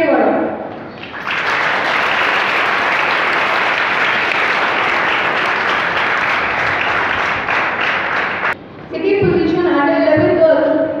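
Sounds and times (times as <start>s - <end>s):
children applauding: 0.7s - 8.6s.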